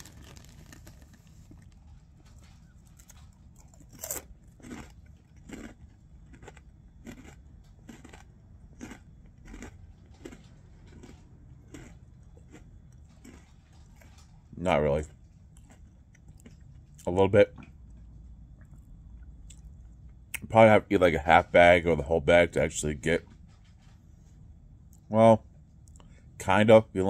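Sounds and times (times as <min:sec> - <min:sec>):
crunchy snacks being chewed: 0:00.0 - 0:17.1.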